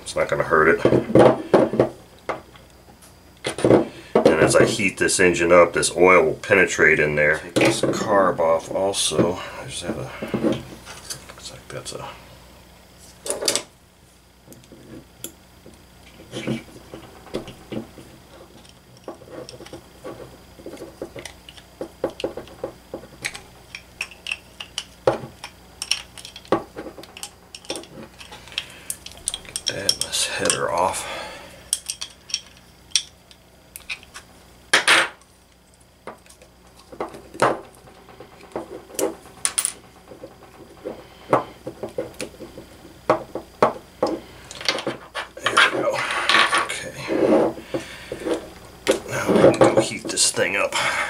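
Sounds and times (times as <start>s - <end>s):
metal clinking and knocking: 19.0s - 30.6s
metal scrape: 45.2s - 48.5s.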